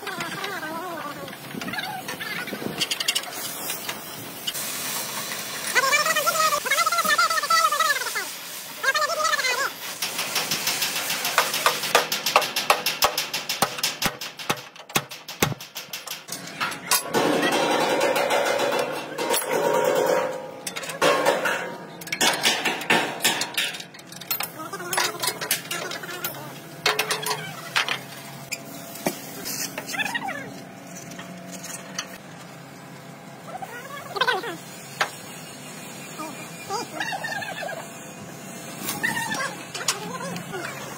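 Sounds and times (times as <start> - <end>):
tools clanking on steel frame: 10.1 - 28.1.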